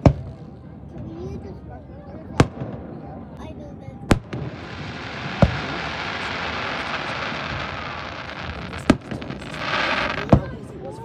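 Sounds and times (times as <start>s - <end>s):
fireworks bursting with bangs: 2.4s - 3.0s, 4.0s - 10.9s
fireworks hiss: 4.1s - 10.7s.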